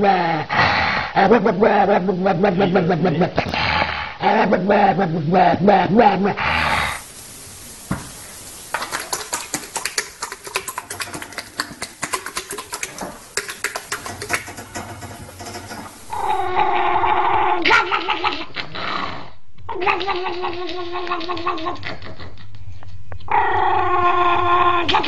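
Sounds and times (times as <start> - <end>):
horse smacking its lips: 8.8 - 16.0.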